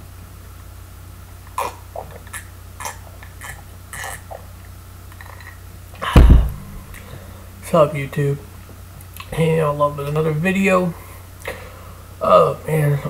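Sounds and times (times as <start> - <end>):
glass thumping down: 6.1 - 7.0
low hum: 6.1 - 7.3.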